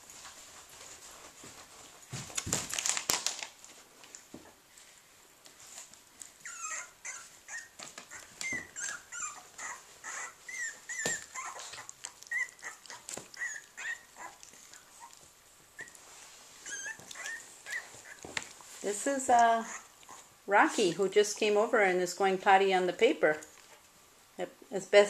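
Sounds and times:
scuffling on crinkling newspaper: 0.0 - 4.3
puppies squeaking and whimpering: 6.4 - 18.4, 19.6 - 20.3.

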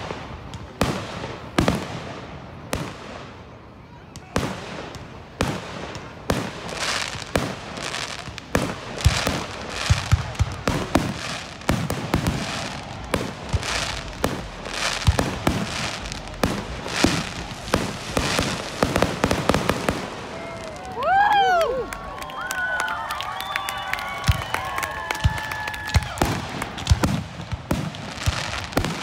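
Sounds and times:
fireworks crackling: 0.0 - 29.0
fireworks shells bursting: 6.7 - 20.9.

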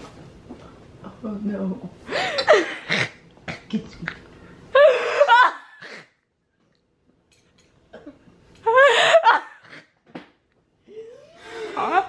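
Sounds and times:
woman squealing laughter: 4.8 - 6.0, 8.7 - 9.8, 11.0 - 12.0.

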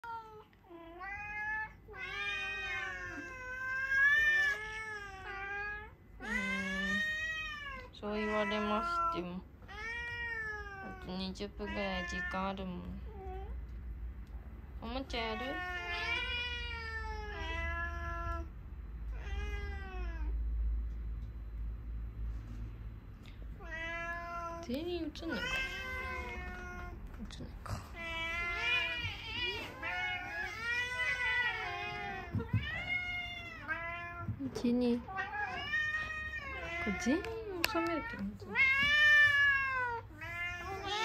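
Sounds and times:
cats meowing: 0.0 - 13.5, 15.1 - 20.4, 23.5 - 41.0
steady low hum: 9.1 - 41.0.

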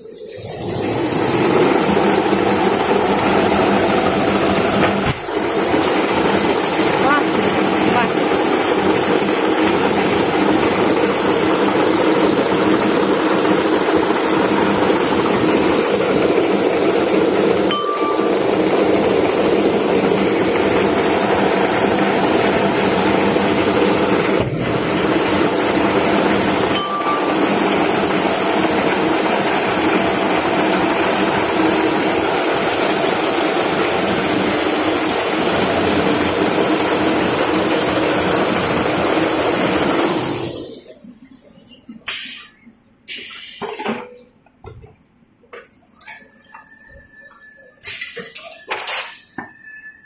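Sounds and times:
machine mechanical hum and hiss: 40.7 - 50.0.

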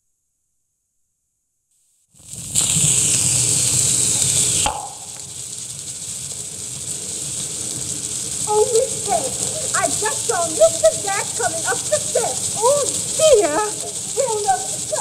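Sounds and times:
phonograph cylinder surface hiss: 2.1 - 15.0
woman's voice: 8.5 - 15.0.

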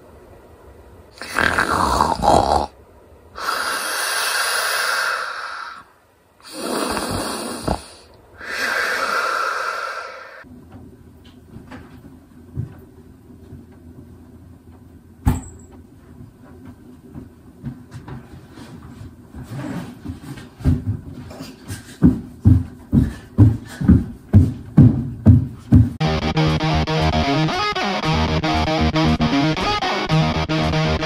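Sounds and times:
cartoon snoring: 1.2 - 2.8, 3.4 - 5.8, 6.4 - 10.4.

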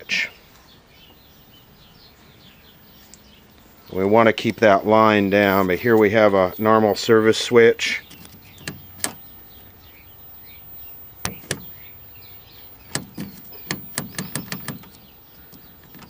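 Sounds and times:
sharp clicks of switches: 8.1 - 9.3, 11.1 - 16.0.

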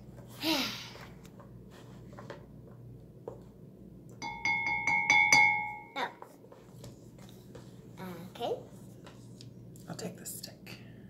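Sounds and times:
bell-like ringing strikes: 4.2 - 6.0.

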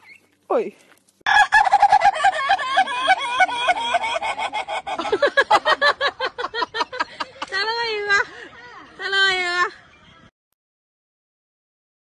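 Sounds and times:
rooster squawking: 1.3 - 2.6.

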